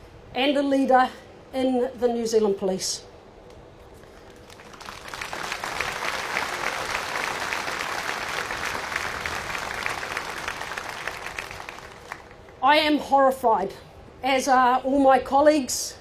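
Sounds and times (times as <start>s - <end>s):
audience applauding: 4.3s - 12.5s.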